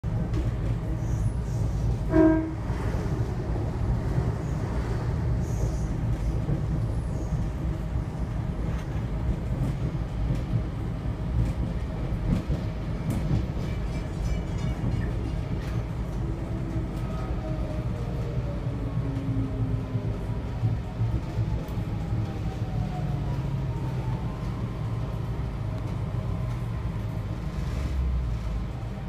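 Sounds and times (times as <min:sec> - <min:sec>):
railcar rumbling on track: 0:00.0 - 0:29.0
train horn toot: 0:02.0 - 0:02.8.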